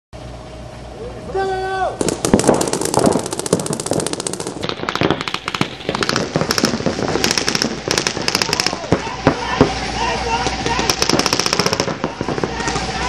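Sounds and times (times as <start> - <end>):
paintball markers firing rapidly: 2.0 - 9.0, 10.8 - 12.8.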